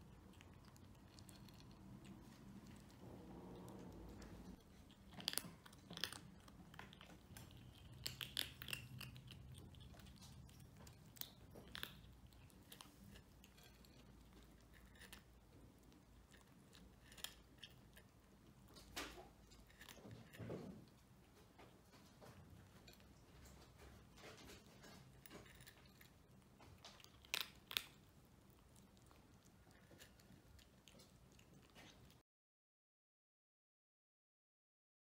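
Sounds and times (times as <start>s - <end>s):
kittens crunching dry kibble: 0.0s - 32.2s.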